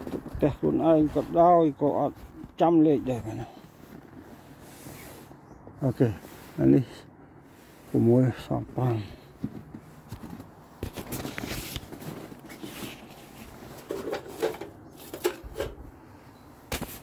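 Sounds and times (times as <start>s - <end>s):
footsteps: 8.6s - 15.3s
paper rustling: 10.8s - 15.4s.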